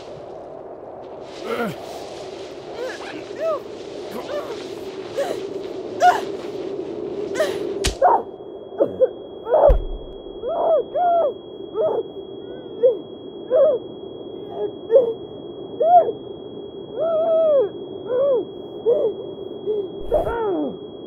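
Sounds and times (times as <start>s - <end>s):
scuffling and whooshes: 0.0s - 8.1s
high-pitched ringing tone: 7.4s - 21.0s
heavy thud: 9.7s - 10.2s.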